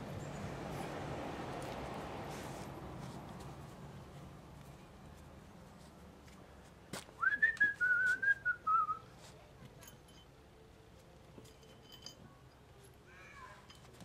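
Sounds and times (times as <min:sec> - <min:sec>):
person whistling: 0:07.2 - 0:09.1.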